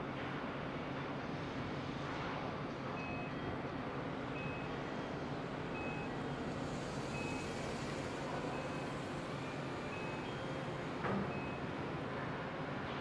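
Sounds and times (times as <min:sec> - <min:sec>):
electronic warning beeps: 0:03.0 - 0:03.6, 0:04.3 - 0:06.4, 0:07.0 - 0:07.9, 0:08.5 - 0:10.7, 0:11.3 - 0:11.8.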